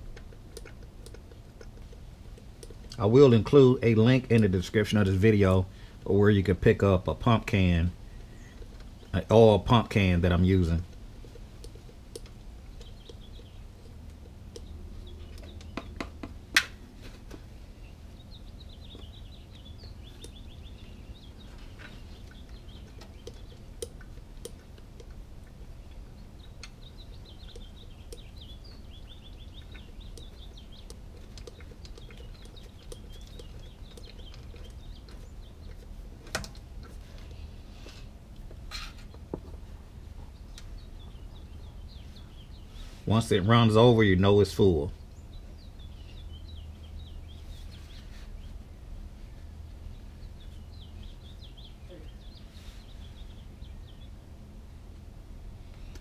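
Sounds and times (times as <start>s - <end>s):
low steady hum: 0.0s - 56.0s
faint bird chirps: 12.7s - 16.0s, 17.7s - 24.7s, 25.5s - 35.9s, 44.5s - 54.2s.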